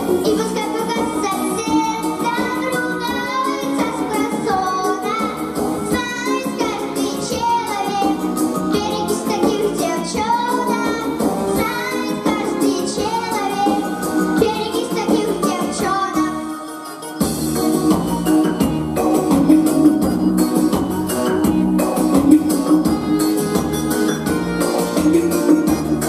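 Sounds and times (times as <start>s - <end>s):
girl singing into a microphone: 0.0s - 16.6s
musical accompaniment with steady beat: 0.0s - 26.0s.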